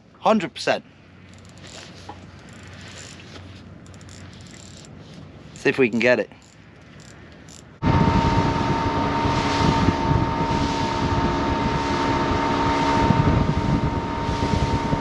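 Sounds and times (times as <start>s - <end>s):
outboard motor running: 1.1s - 5.3s
wind on microphone: 7.8s - 15.0s.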